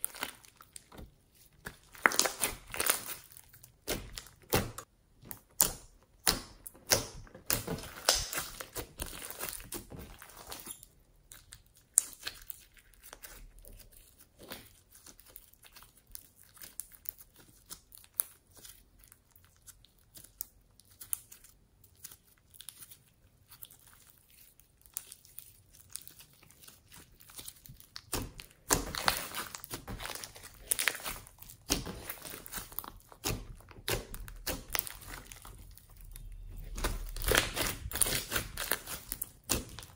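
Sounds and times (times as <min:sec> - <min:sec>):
sticky slime clicks: 0:03.8 - 0:08.8.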